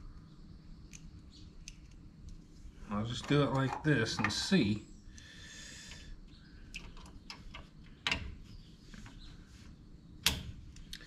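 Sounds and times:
connectors clicking onto terminals: 0:00.2 - 0:05.3, 0:05.9 - 0:08.4.

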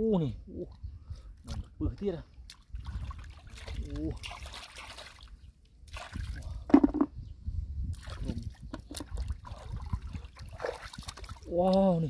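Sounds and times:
muddy water splashing: 0:02.3 - 0:07.0, 0:08.0 - 0:12.0.

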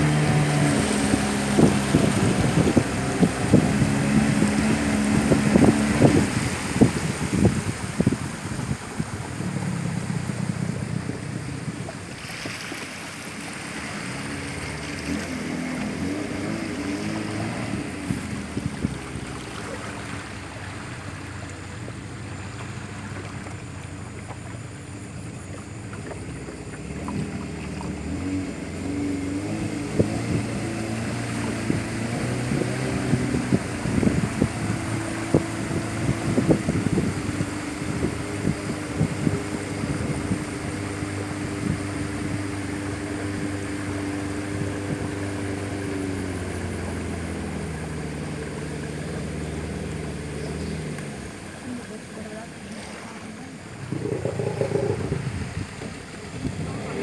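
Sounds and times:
boat motor running: 0:00.0 - 0:57.0
rushing water: 0:00.0 - 0:57.0
water slapping hull: 0:00.0 - 0:57.0
wind: 0:00.0 - 0:57.0.

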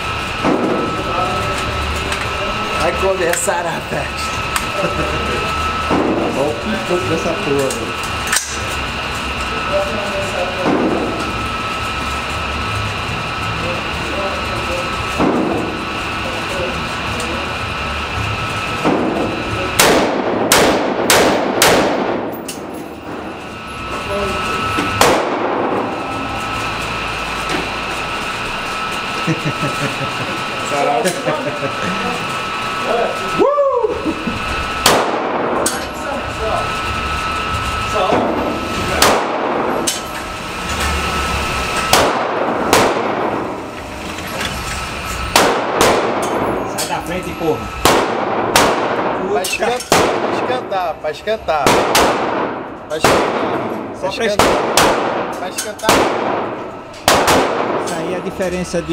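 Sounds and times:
fainter distant shots: 0:19.8 - 0:22.4, 0:24.9 - 0:26.1, 0:34.8 - 0:35.6, 0:39.0 - 0:39.8, 0:41.8 - 0:43.5, 0:45.2 - 0:46.7, 0:47.8 - 0:50.8, 0:51.6 - 0:58.2
rifle shots echoing indoors: 0:19.8 - 0:23.2, 0:25.0 - 0:26.0, 0:34.8 - 0:35.8, 0:39.0 - 0:40.0, 0:41.8 - 0:43.6, 0:45.2 - 0:46.6, 0:47.8 - 0:49.2, 0:49.9 - 0:50.6, 0:51.6 - 0:57.9.

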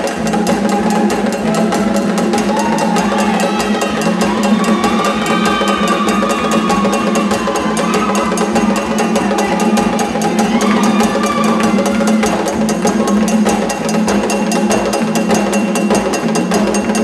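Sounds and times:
hand drums: 0:00.0 - 0:17.0
voices singing: 0:00.5 - 0:13.9.

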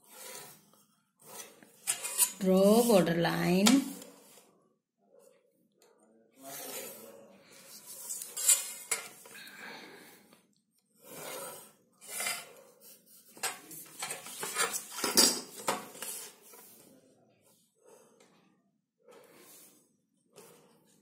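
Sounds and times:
pencil scratching on paper: 0:00.0 - 0:03.2, 0:06.4 - 0:08.9, 0:11.0 - 0:15.0
steel ruler clinking and scraping: 0:01.3 - 0:03.8, 0:07.8 - 0:09.3, 0:12.0 - 0:12.6.

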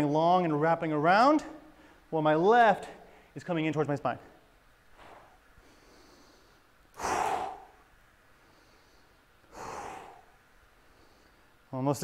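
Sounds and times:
man breathing out hard: 0:05.0 - 0:11.5.

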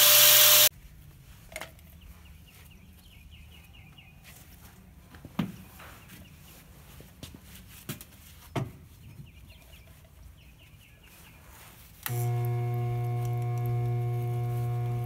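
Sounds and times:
electric motor humming: 0:00.0 - 0:00.7, 0:12.1 - 0:15.0.

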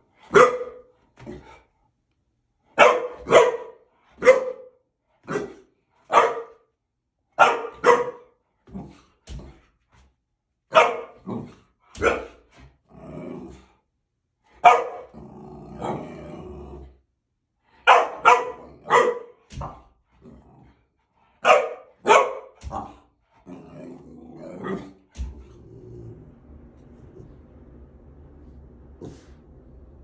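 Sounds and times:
dog barking: 0:00.3 - 0:00.9, 0:02.8 - 0:06.7, 0:07.4 - 0:08.4, 0:10.7 - 0:11.3, 0:12.0 - 0:12.4, 0:14.6 - 0:15.1, 0:17.8 - 0:19.8, 0:21.4 - 0:23.0
dog growling: 0:12.8 - 0:13.8, 0:15.0 - 0:17.0, 0:20.2 - 0:20.9, 0:22.7 - 0:27.5.

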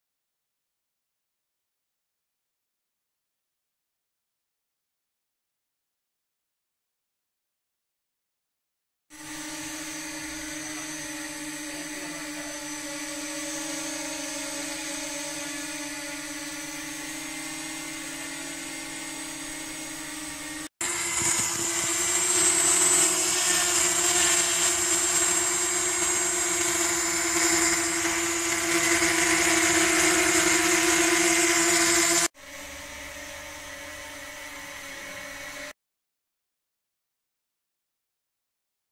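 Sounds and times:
drone propeller hum: 0:09.2 - 0:35.7.

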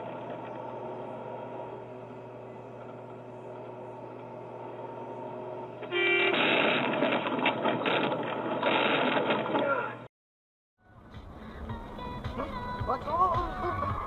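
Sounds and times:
truck engine drone: 0:00.0 - 0:10.1, 0:10.8 - 0:14.0
truck horn blast: 0:05.8 - 0:07.3.

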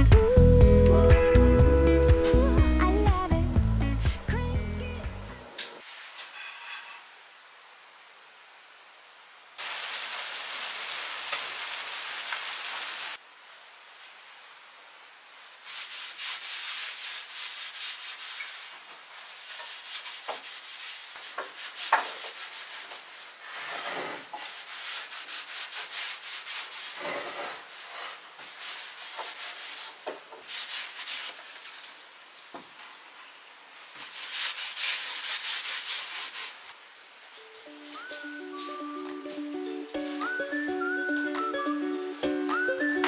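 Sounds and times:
cloth rubbing on wooden shelf: 0:15.6 - 0:31.9, 0:33.9 - 0:36.8.

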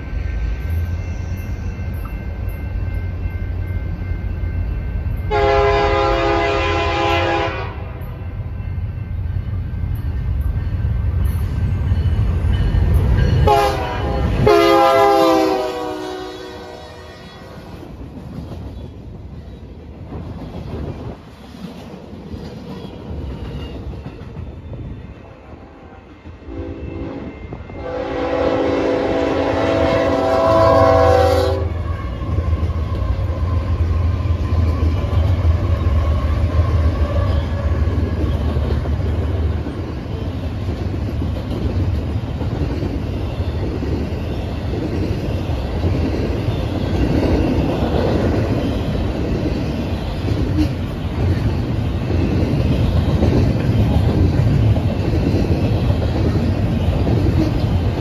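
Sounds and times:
low rumble of diesel locomotives: 0:00.0 - 0:58.0
train cars clickety-clack: 0:00.0 - 0:58.0
diesel locomotive horn: 0:05.3 - 0:08.2, 0:13.4 - 0:17.7, 0:25.6 - 0:33.3.

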